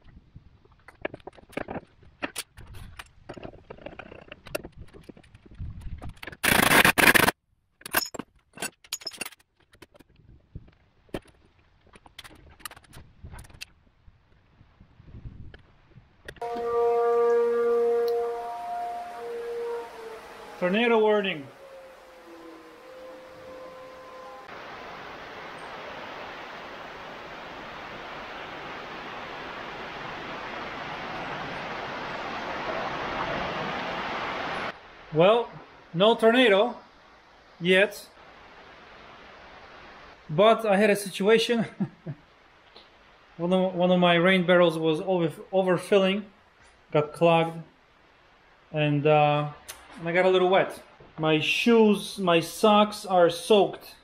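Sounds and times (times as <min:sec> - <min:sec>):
metal tools clinking and scraping: 0:07.8 - 0:09.5
heavy rain falling: 0:18.1 - 0:40.3.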